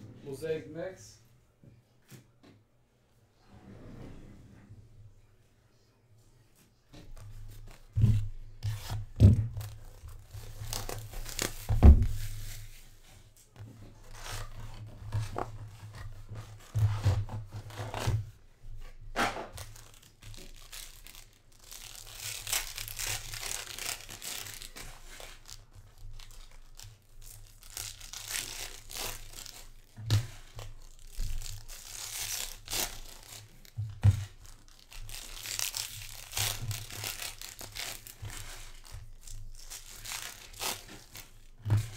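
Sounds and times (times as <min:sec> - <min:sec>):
foil packs tearing and crinkling: 0:09.6 - 0:12.6, 0:19.2 - 0:41.9.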